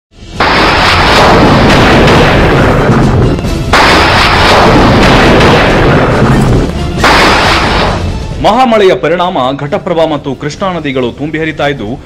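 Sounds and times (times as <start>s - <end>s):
thunder rumbling: 0.4s - 8.4s.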